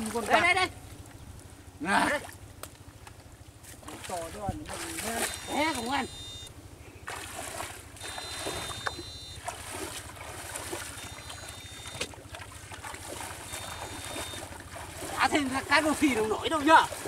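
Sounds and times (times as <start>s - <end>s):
water sloshing from wading: 0.0s - 17.0s
high-pitched electric whine: 5.0s - 6.5s, 8.0s - 9.5s, 10.9s - 12.1s.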